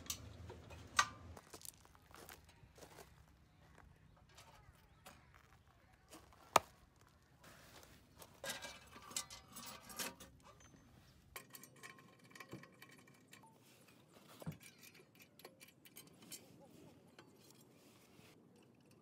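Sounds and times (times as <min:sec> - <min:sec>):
metallic clicks and clinks of stove: 0:00.0 - 0:01.4, 0:08.4 - 0:19.0
faint clattering: 0:08.1 - 0:19.0.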